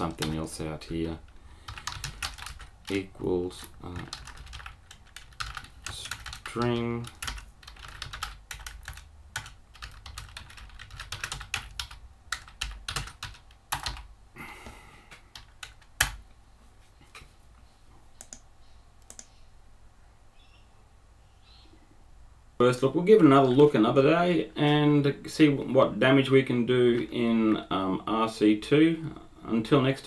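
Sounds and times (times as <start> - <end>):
keyboard typing: 0.0 - 0.5, 1.2 - 14.1, 15.1 - 16.2, 18.2 - 19.3.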